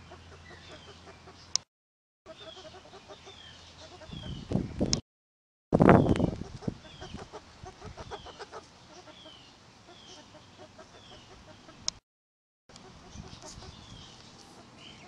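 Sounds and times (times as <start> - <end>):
chickens clucking softly: 6.1 - 12.0, 12.7 - 15.0.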